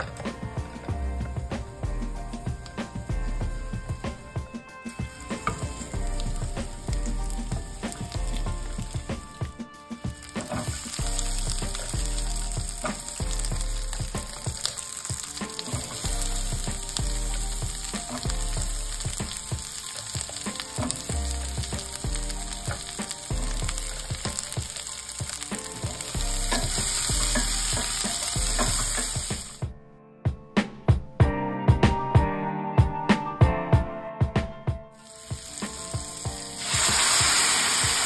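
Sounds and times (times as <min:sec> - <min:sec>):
vegetables sizzling in hot oil: 0:04.9 - 0:29.6, 0:35.0 - 0:38.0.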